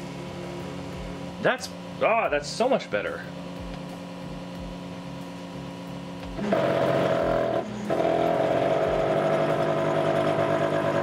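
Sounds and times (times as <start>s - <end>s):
printer stepper motor whine: 5.9s - 11.0s.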